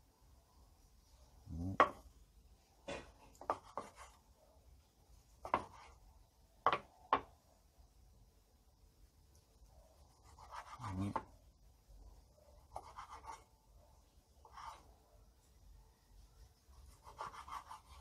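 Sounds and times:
knife knocking cutting board: 1.7 - 2.0, 6.6 - 7.3.

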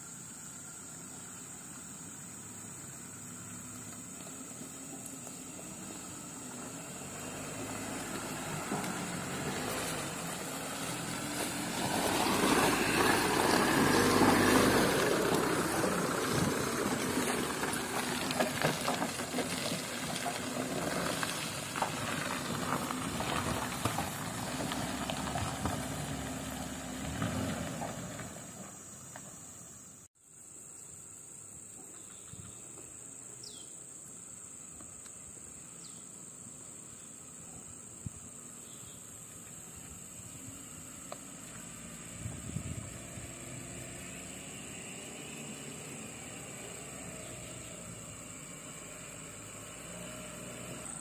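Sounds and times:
pickup truck engine: 2.2 - 29.7.

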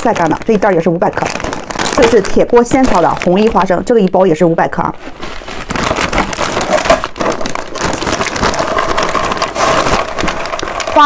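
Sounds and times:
peanut shells pouring onto wood: 6.6 - 11.0.

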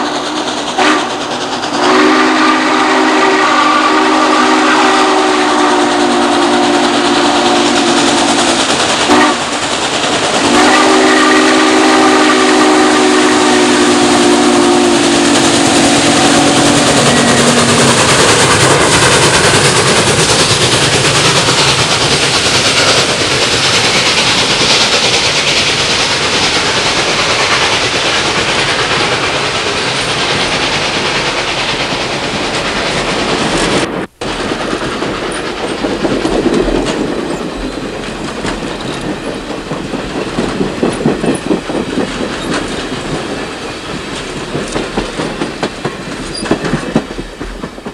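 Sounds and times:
steam locomotive chime whistle: 0.0 - 9.5, 10.4 - 18.8
passenger train rolling past: 0.0 - 47.9
wheels clicking over rail joints: 6.0 - 10.8, 14.9 - 47.9.

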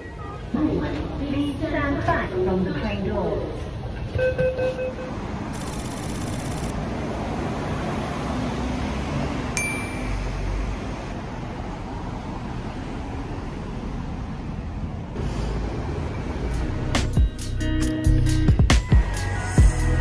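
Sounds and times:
street traffic rumble: 0.0 - 20.0
bell-like ding: 9.6 - 10.6.

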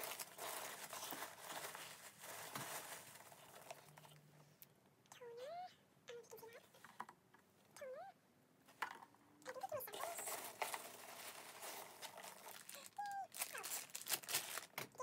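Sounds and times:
packing peanuts and bag crinkling: 0.0 - 3.9, 9.8 - 15.0.

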